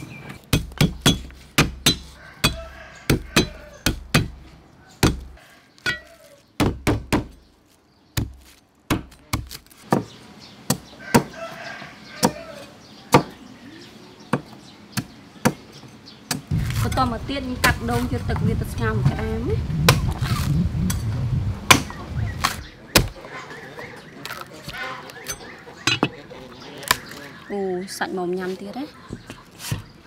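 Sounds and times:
cleaver chopping on wooden board: 0.5 - 4.4, 5.0 - 5.3, 5.9 - 7.4, 8.2 - 11.4, 13.1 - 13.4, 21.7 - 23.2.

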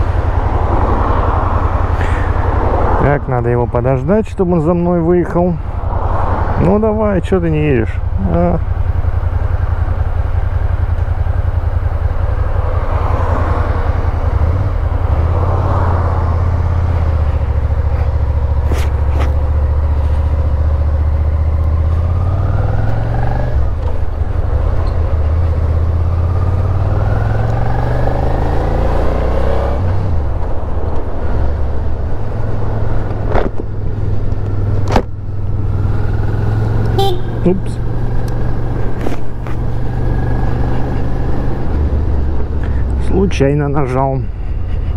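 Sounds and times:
motorcycle engine accelerating: 7.9 - 42.9.

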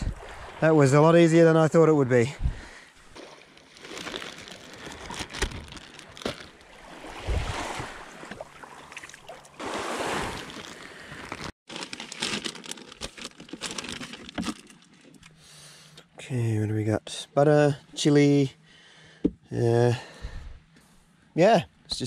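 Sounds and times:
water sloshing: 0.0 - 1.0, 2.6 - 11.5
small waves washing ashore: 0.0 - 1.3, 6.0 - 11.5
plastic bag crinkling: 3.6 - 6.6, 10.5 - 15.0.

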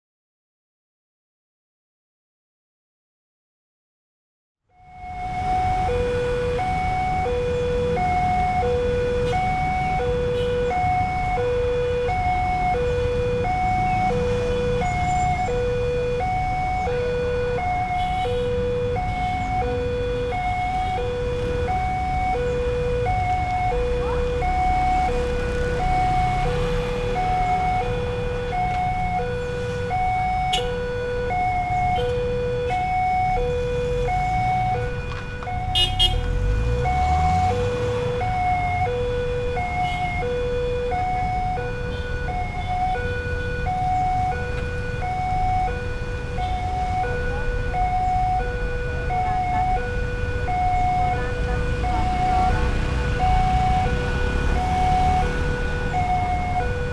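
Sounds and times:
road traffic engines rumbling: 4.7 - 56.9
two-tone level crossing alarm: 4.7 - 56.9
car engine pulling away: 51.6 - 56.8.

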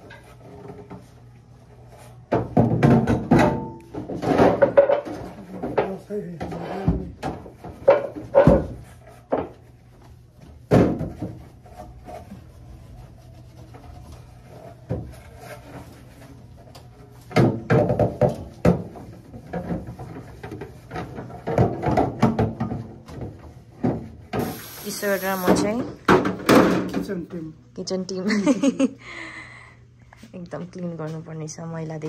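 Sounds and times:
refrigerator shelves clattering: 2.3 - 9.0, 17.3 - 24.3.

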